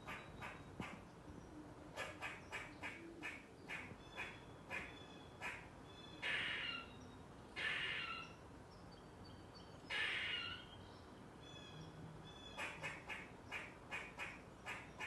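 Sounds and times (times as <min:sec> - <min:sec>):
squirrel alarm calls: 0:00.0 - 0:01.1, 0:01.9 - 0:07.0, 0:07.6 - 0:08.4, 0:09.9 - 0:10.8, 0:11.4 - 0:15.0.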